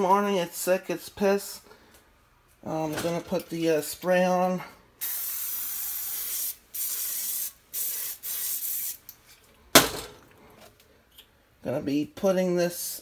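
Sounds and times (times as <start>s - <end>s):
aerosol spray can hissing: 5.0s - 9.0s.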